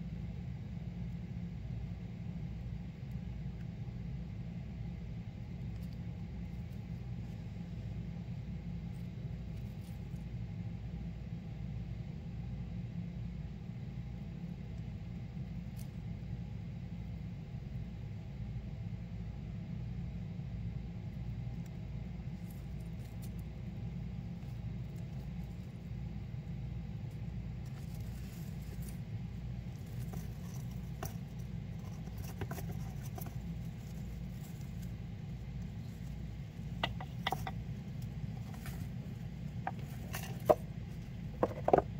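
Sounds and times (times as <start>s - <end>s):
steady low hum: 0.0s - 41.9s
hamster rustling in bedding: 27.2s - 36.6s.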